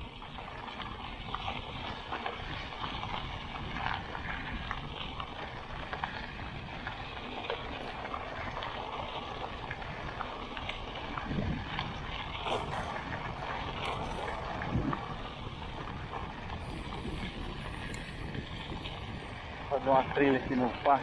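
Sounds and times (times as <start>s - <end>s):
bike tyres crunching on gravel: 0.0s - 21.0s
wind on microphone: 10.9s - 20.5s.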